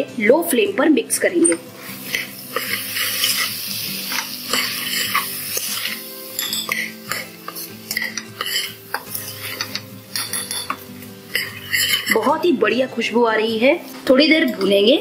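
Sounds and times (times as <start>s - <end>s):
food sizzling: 1.1s - 15.0s
spoon scraping metal pot: 1.4s - 12.3s
spoon clinks: 5.8s - 7.3s, 9.5s - 12.2s.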